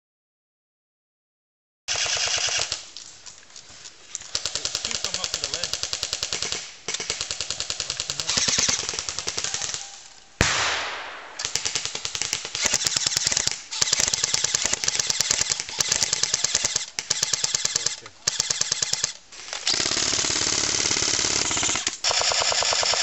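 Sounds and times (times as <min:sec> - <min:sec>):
airsoft guns firing full auto: 0:01.9 - 0:02.9, 0:04.3 - 0:23.0
sharp bang: 0:10.4 - 0:11.5.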